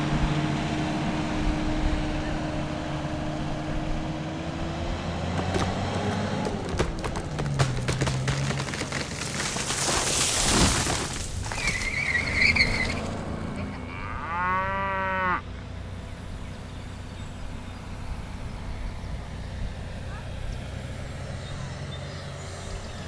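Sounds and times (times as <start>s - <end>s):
high squeal: 11.5s - 13.2s
cow mooing: 13.5s - 15.4s.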